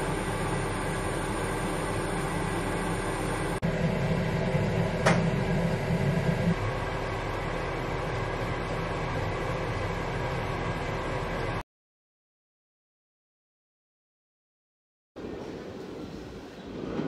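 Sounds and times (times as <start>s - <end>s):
mechanical fan hum: 0.0s - 11.6s.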